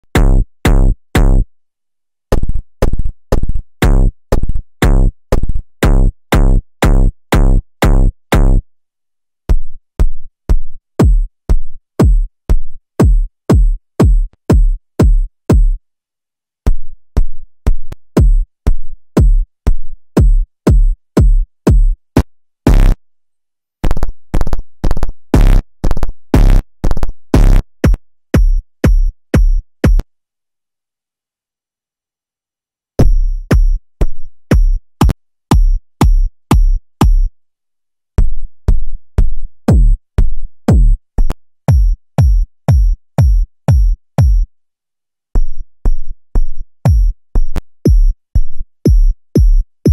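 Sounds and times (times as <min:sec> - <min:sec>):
electronic kick drum hits: 0:00.1 - 0:01.4, 0:11.0 - 0:11.3, 0:12.0 - 0:12.3, 0:13.0 - 0:15.8, 0:18.2 - 0:18.4, 0:19.2 - 0:19.4, 0:20.2 - 0:22.0, 0:22.7 - 0:23.0, 0:27.4 - 0:30.0, 0:33.0 - 0:33.8, 0:34.5 - 0:34.8, 0:35.5 - 0:37.3, 0:39.7 - 0:40.0, 0:40.7 - 0:41.0, 0:41.7 - 0:44.5, 0:46.9 - 0:47.2, 0:47.9 - 0:48.2, 0:48.9 - 0:49.9.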